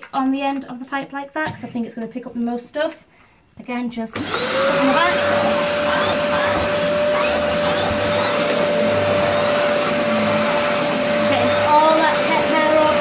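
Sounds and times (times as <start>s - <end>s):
vacuum cleaner running: 4.1s - 13.0s.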